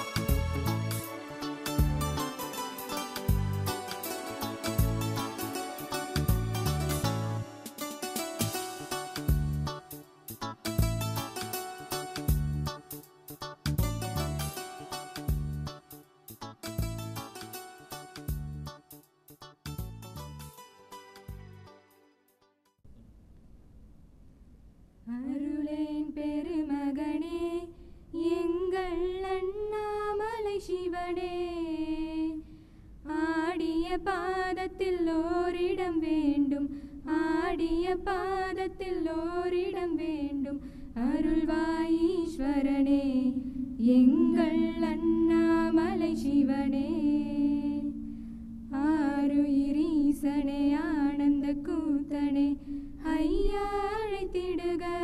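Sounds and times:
women singing together: 33.2s - 48.0s, 48.8s - 55.0s.

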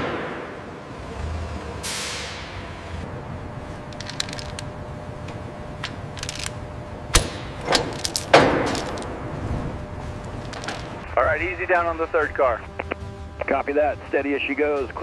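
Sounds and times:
steady background hum: 0.0s - 15.0s
steel chains clinking: 3.9s - 4.6s, 6.1s - 6.6s, 7.7s - 9.2s, 10.4s - 11.0s.

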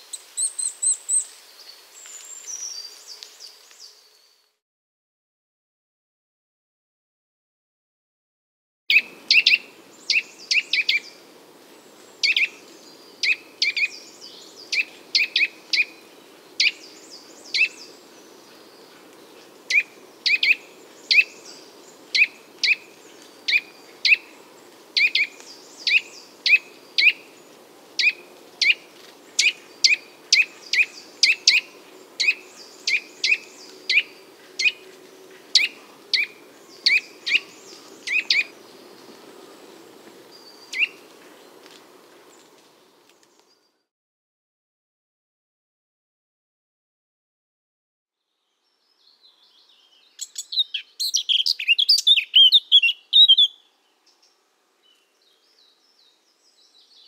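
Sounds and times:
small bird chirping: 0.1s - 4.5s, 25.0s - 27.3s, 29.4s - 34.8s, 35.6s - 39.1s, 40.3s - 41.0s, 48.7s - 57.0s.

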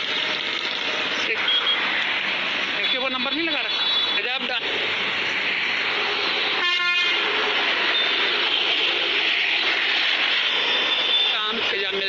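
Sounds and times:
steady rushing noise: 0.0s - 12.0s
vehicle horn toot: 6.6s - 7.2s.

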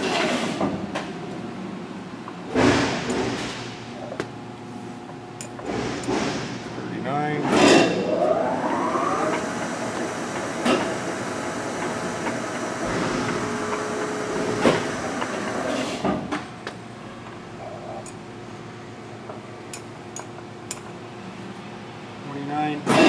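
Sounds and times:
lathe running: 7.9s - 15.7s.

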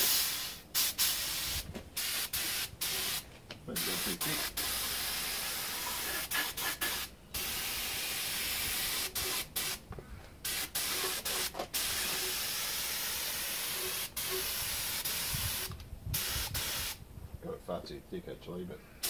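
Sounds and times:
air spray gun hissing: 0.0s - 3.2s, 3.8s - 9.8s, 10.4s - 17.0s.

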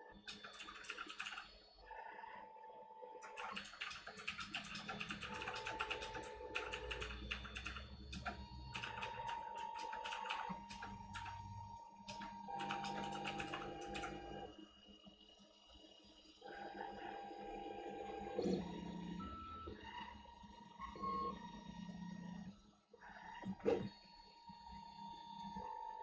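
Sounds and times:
stepper motors ticking: 3.2s - 11.5s, 12.1s - 14.2s.

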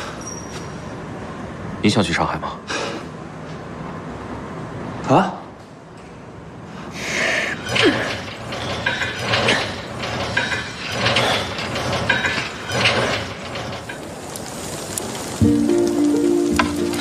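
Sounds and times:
weight stack and cable clattering: 7.6s - 15.4s.

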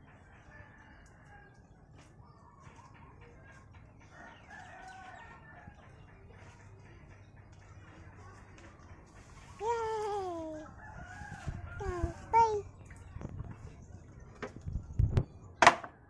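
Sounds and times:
rooster crowing faintly: 10.4s - 12.6s.

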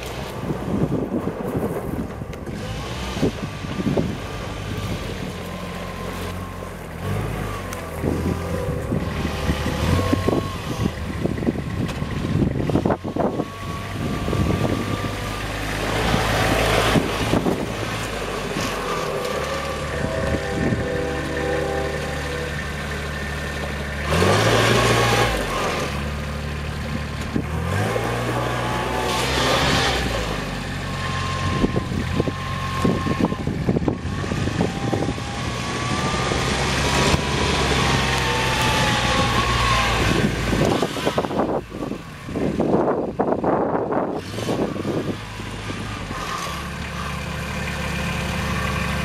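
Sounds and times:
diesel engine running: 0.0s - 49.0s
gravel crunching under tyres: 0.0s - 49.0s
high whine: 12.8s - 24.5s.

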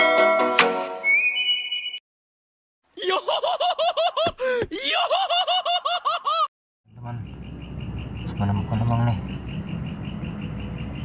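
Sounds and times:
crickets chirping: 6.9s - 11.0s.

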